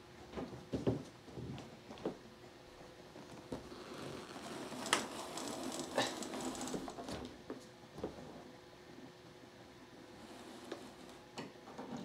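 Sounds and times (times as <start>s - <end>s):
rustling: 3.2s - 7.3s.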